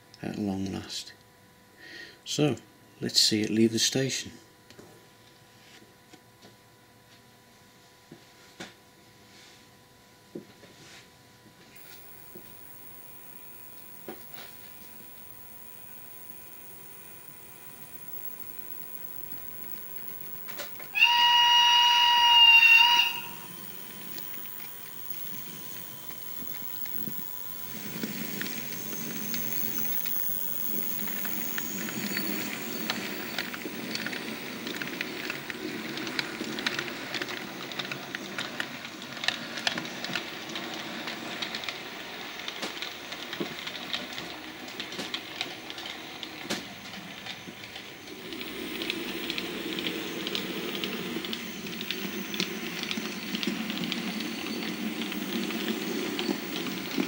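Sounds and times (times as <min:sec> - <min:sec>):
model steam engine hiss: 0:11.8 - 0:35.5
wheels clicking over rail joints: 0:22.8 - 0:57.0.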